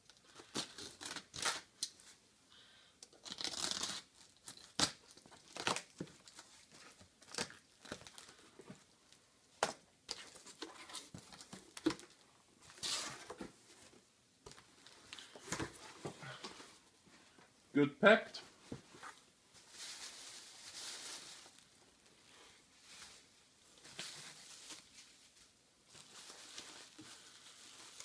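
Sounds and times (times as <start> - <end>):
tape tearing: 0.4 - 2.0, 3.0 - 6.4
cardboard and paper rustling: 18.7 - 21.7, 22.8 - 28.0.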